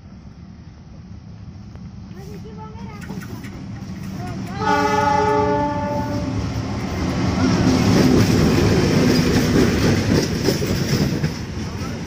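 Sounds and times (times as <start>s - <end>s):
train rumbling past: 0.0s - 12.0s
locomotive horn: 4.5s - 6.4s.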